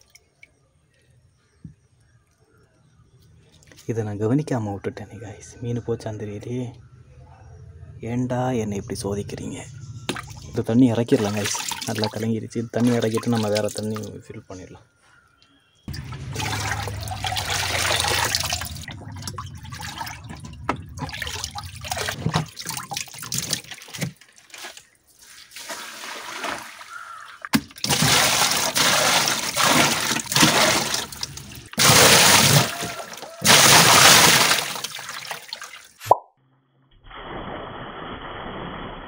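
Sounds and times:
water splashing and pouring: 10.1s - 14.2s, 15.9s - 36.0s, 37.1s - 39.0s.

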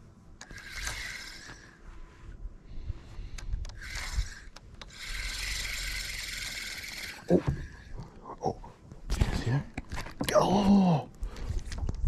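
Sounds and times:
fishing reel whirring: 0.4s - 1.8s, 3.7s - 7.9s
sharp clicks: 3.3s - 7.0s.

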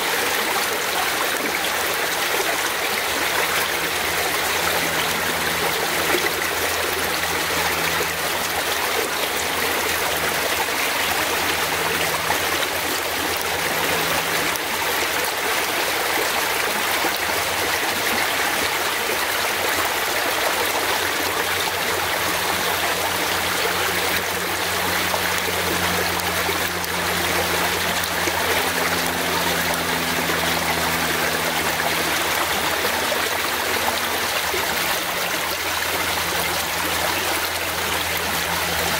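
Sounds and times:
fast-flowing stream: 0.0s - 38.9s.

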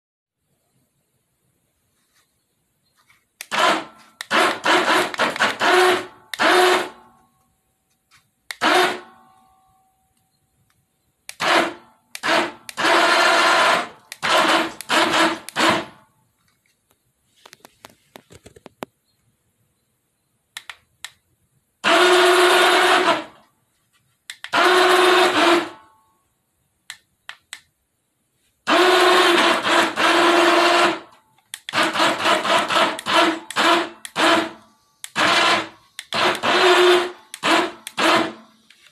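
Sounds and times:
small electric motors whirring: 31.7s - 38.9s.

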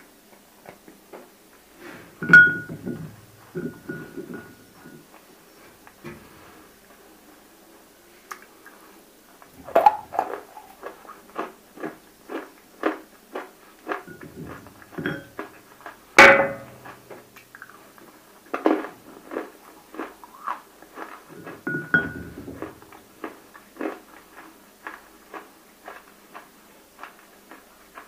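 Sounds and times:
crunching and chewing clay pieces: 9.4s - 28.0s.

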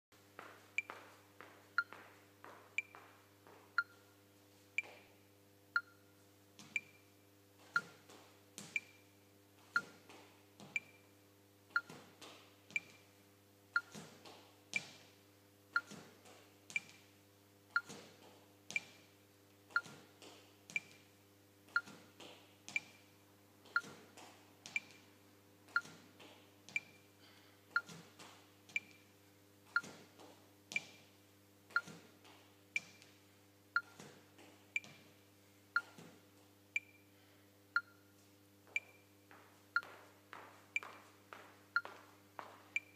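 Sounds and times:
faint steady hum: 0.2s - 42.9s
clock tick-tock: 5.7s - 6.0s, 6.6s - 7.0s, 7.7s - 8.0s, 8.6s - 9.0s, 9.7s - 10.0s, 10.6s - 11.0s, 11.7s - 12.0s, 12.7s - 13.1s, 13.8s - 14.1s, 14.7s - 15.1s, 15.8s - 16.1s, 16.7s - 17.0s, 17.7s - 18.0s, 19.8s - 20.1s, 20.7s - 21.0s, 22.7s - 23.0s, 23.7s - 24.0s, 24.7s - 25.0s, 25.8s - 26.0s, 26.7s - 27.0s, 27.7s - 28.0s, 28.7s - 29.0s, 29.8s - 30.0s, 30.7s - 31.0s, 31.7s - 32.0s, 32.7s - 33.1s, 33.8s - 34.1s, 34.8s - 35.1s, 36.8s - 37.1s, 37.7s - 38.1s, 38.8s - 39.0s, 39.7s - 40.0s.

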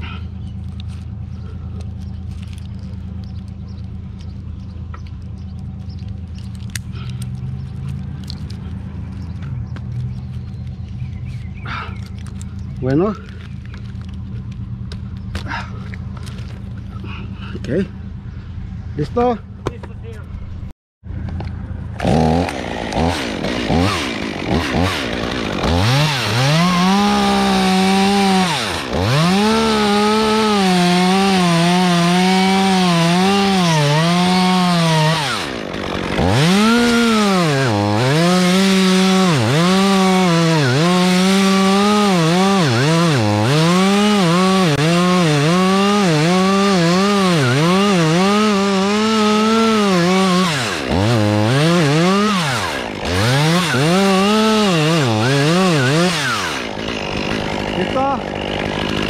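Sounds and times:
chainsaw cutting wood at high revs: 21.9s - 59.0s.

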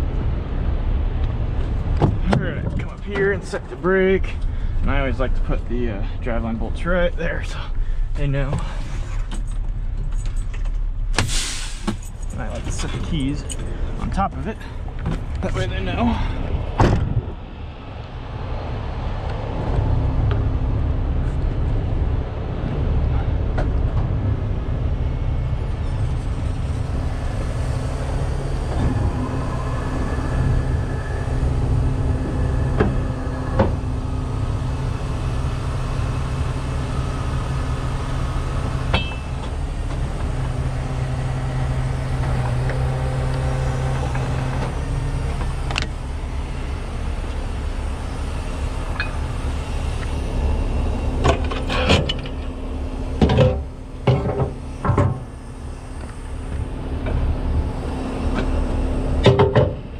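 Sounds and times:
tow truck engine idling: 24.1s - 59.9s
sharp clicks and knocks: 59.2s - 59.8s.

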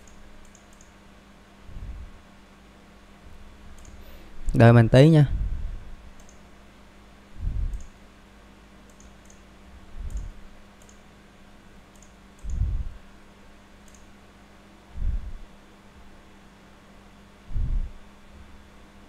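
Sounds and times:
computer mouse clicking: 0.0s - 1.0s, 3.7s - 4.1s, 6.2s - 6.5s, 7.7s - 8.0s, 8.8s - 11.1s, 11.9s - 12.8s, 13.8s - 14.1s
steady low hum: 0.0s - 19.0s
dull low thumps: 1.7s - 2.2s, 5.3s - 5.9s, 7.4s - 7.8s, 10.0s - 10.4s, 12.4s - 13.0s, 15.0s - 15.5s, 17.5s - 18.0s.

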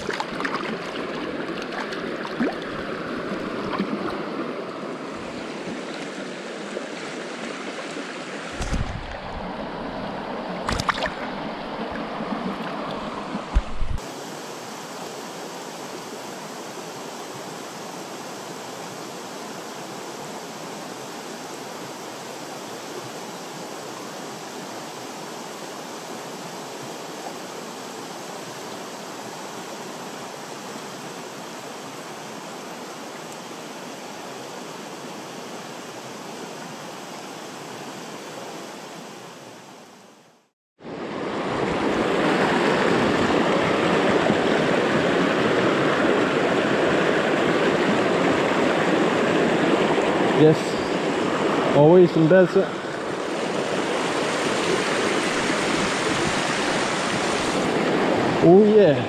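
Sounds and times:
fast water rushing over rocks: 0.0s - 14.5s, 40.8s - 59.0s
shallow stony stream rushing: 0.0s - 59.0s.

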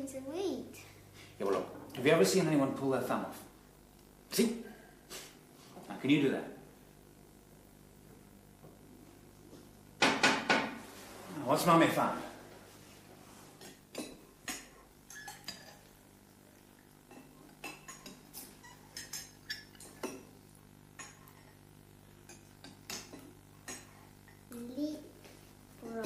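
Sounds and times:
cutlery and crockery clinking: 13.6s - 15.9s, 17.1s - 20.3s, 21.0s - 21.6s, 22.2s - 24.4s.

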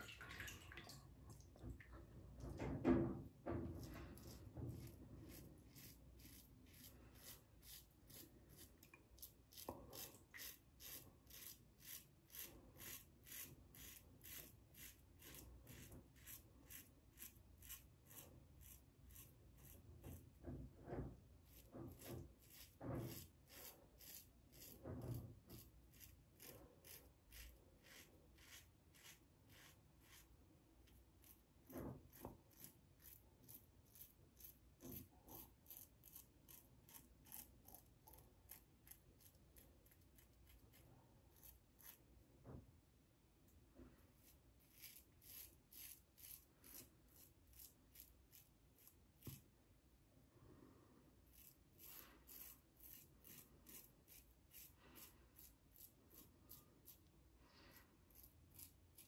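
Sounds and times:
razor scraping stubble: 3.8s - 20.4s, 21.4s - 42.1s, 44.2s - 49.3s, 51.3s - 57.1s, 58.1s - 59.0s.

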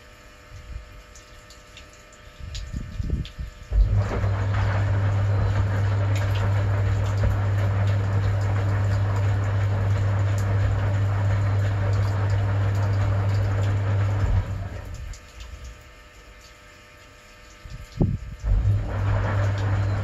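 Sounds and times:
water sloshing in drum: 1.1s - 20.0s
washing machine motor hum: 2.4s - 20.0s.

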